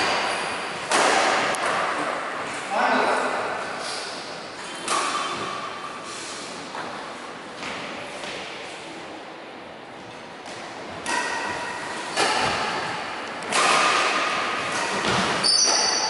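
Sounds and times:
badminton racket hits: 0:00.0 - 0:02.3, 0:04.8 - 0:05.8, 0:10.5 - 0:16.0
shoes squeaking on wooden floor: 0:15.1 - 0:16.0.

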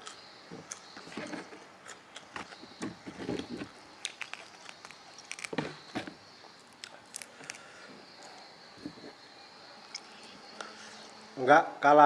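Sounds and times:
chewing and mouth sounds: 0:04.0 - 0:05.6.

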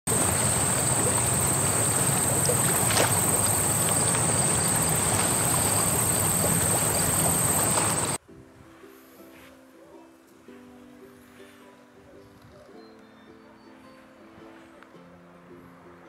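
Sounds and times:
high whine: 0:00.1 - 0:08.2
loud rushing water: 0:00.1 - 0:08.2.

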